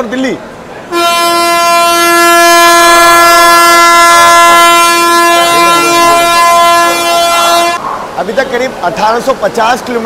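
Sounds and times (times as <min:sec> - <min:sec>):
locomotive horn blast: 0:00.9 - 0:07.8.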